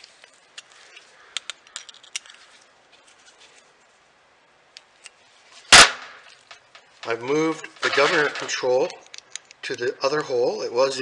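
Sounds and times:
sharp loud clack: 5.7s - 6.4s.

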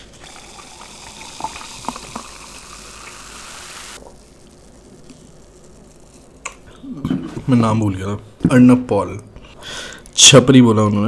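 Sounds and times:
soda fizzing as poured: 0.0s - 4.9s.

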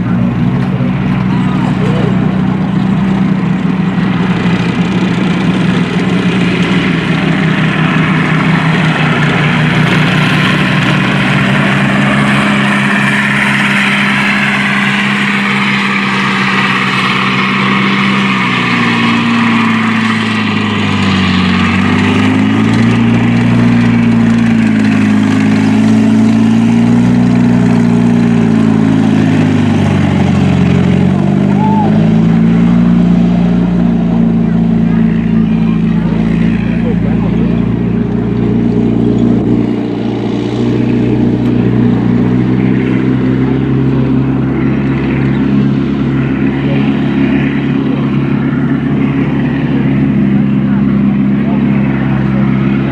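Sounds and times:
nearer tank engine: 0.0s - 52.9s
tank engine running: 0.0s - 52.9s
high wavering squeal: 6.3s - 30.4s.

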